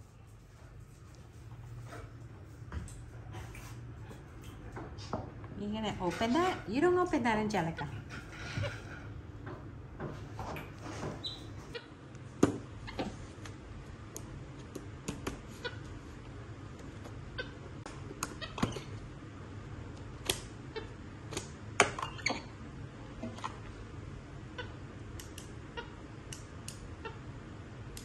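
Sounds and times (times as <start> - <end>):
faint low hum: 0.0 - 28.0.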